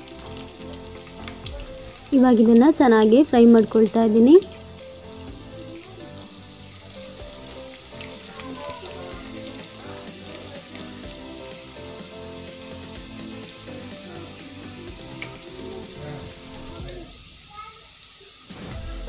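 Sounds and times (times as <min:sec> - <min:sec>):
background music: 0:00.0 - 0:17.3
onions sizzling in hot oil: 0:00.0 - 0:19.0.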